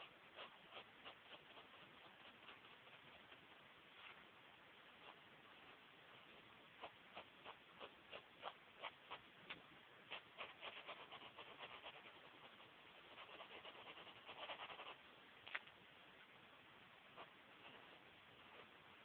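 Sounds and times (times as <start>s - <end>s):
pencil scratching on paper: 0.0s - 3.4s, 10.1s - 15.0s.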